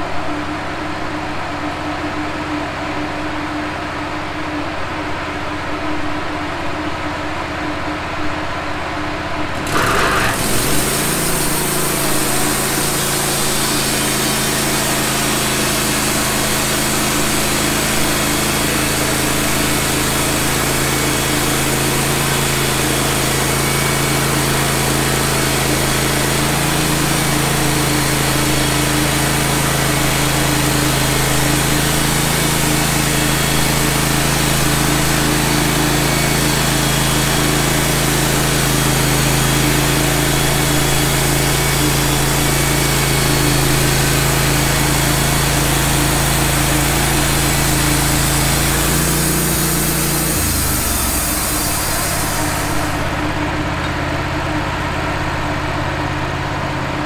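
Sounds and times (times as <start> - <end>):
motor hum: 9.4 - 57.0
band saw cutting log: 9.6 - 54.1.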